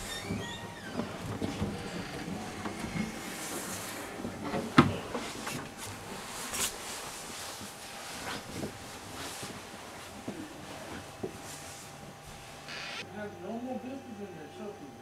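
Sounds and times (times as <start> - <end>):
fabric rustling: 1.0 - 12.7.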